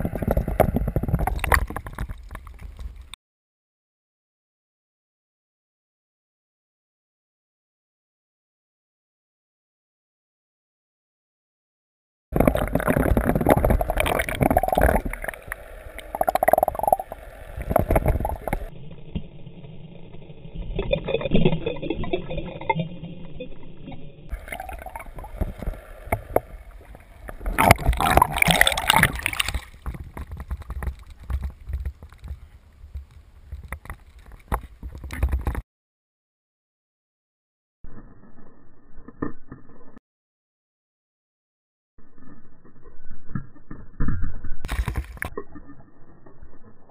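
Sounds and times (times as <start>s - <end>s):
water gurgling underwater: 0.0s - 3.1s, 12.4s - 32.5s
water splashing: 12.4s - 18.7s, 24.3s - 35.6s.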